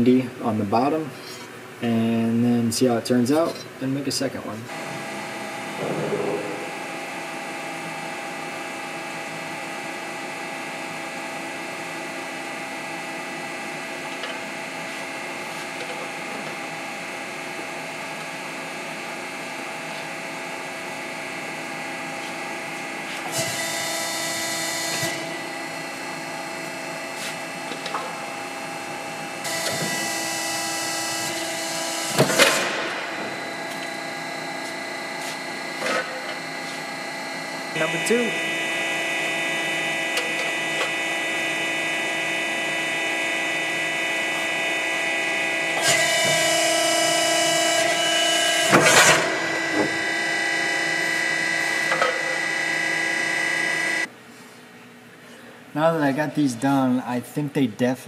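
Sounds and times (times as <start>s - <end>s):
sharp bang of steel bending: 5.7s - 7.6s.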